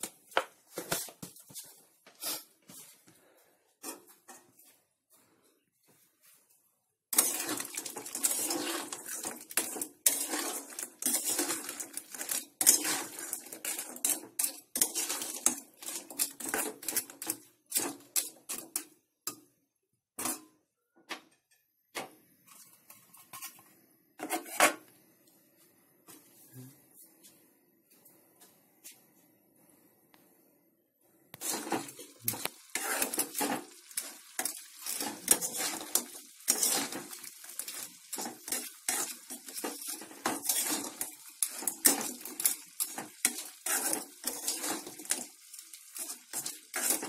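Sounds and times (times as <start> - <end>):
metal spoon scraping a metal pan: 7.1 - 18.9, 24.2 - 24.8, 31.4 - 47.0.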